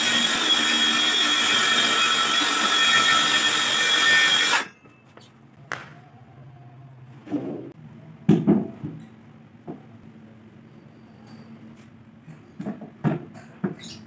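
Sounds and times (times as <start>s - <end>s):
circular saw cutting plywood: 0.0s - 4.7s.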